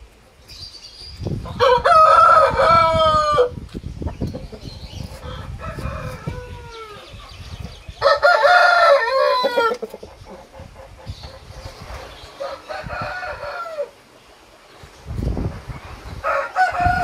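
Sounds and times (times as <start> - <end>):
roosters crowing: 1.4 - 3.6, 4.6 - 10.0, 11.1 - 14.1, 16.1 - 17.0.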